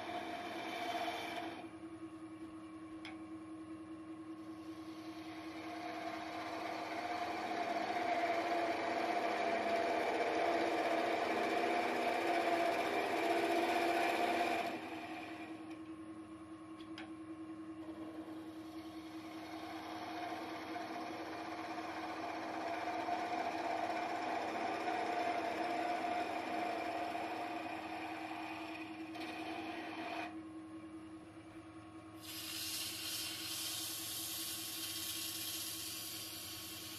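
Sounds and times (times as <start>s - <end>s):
turning tool cutting wood: 0.0s - 1.7s, 4.7s - 15.6s, 17.9s - 30.3s
wood lathe humming: 0.0s - 1.7s, 4.6s - 15.7s, 17.8s - 30.4s.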